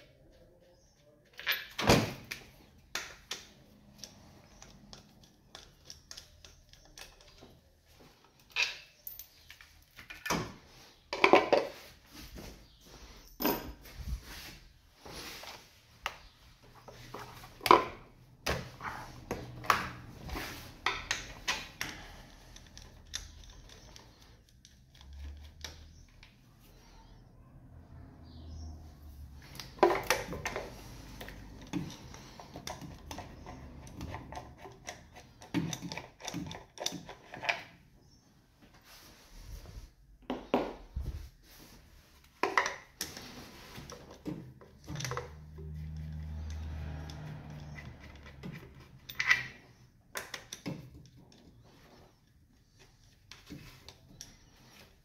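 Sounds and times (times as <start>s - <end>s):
tools clinking against metal: 13.2s - 14.0s.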